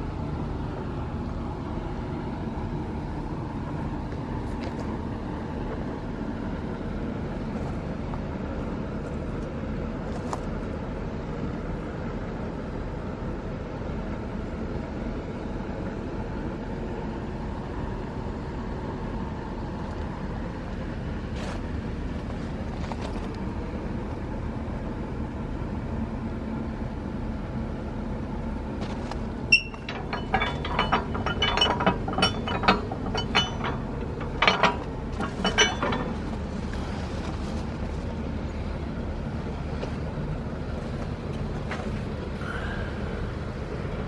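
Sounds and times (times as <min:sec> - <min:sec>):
steady background rumble: 0:00.0 - 0:44.0
metallic clinks and rattles: 0:29.5 - 0:36.7.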